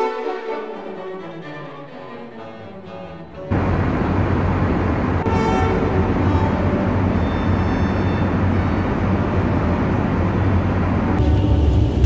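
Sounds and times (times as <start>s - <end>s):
low hum: 3.4s - 12.0s
airliner cabin engine rush: 3.5s - 12.0s.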